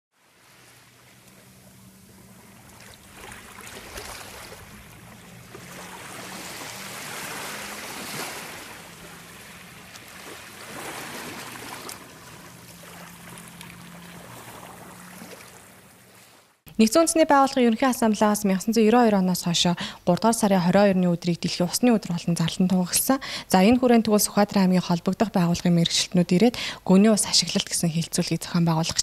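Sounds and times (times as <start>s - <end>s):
rushing splashing water: 0.2s - 16.4s
low steady drone: 0.4s - 16.0s.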